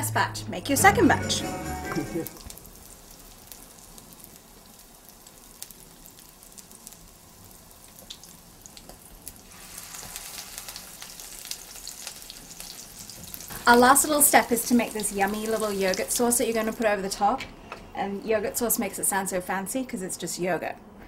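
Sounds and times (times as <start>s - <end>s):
oil sizzling in frying pan: 2.0s - 17.3s.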